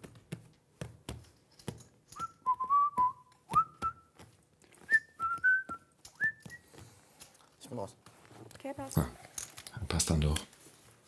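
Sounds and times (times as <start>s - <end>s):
person whistling a tune: 2.2s - 4.1s, 4.8s - 6.7s.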